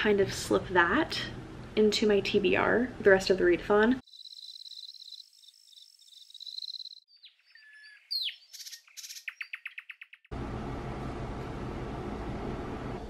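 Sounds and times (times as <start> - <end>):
crickets chirping: 4.0 - 7.0
birds chirping and trilling: 4.0 - 10.3
electric kettle heating water: 10.3 - 13.0.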